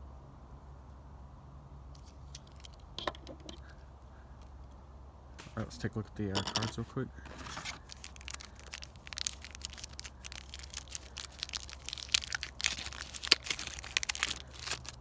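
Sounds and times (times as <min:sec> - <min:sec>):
plastic packaging crackling: 0:07.3 - 0:15.0.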